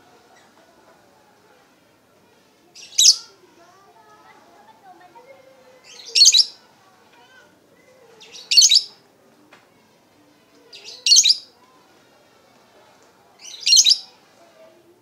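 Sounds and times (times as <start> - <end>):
lovebird high-pitched calls: 2.8 - 3.2, 5.9 - 6.6, 8.3 - 9.0, 10.8 - 11.5, 13.4 - 14.1.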